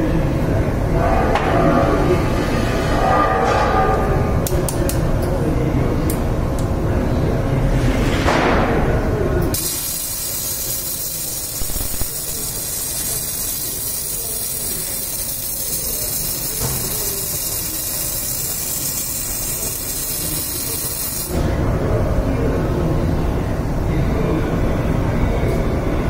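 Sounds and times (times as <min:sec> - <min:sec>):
welding arc hissing: 0:09.6 - 0:21.4.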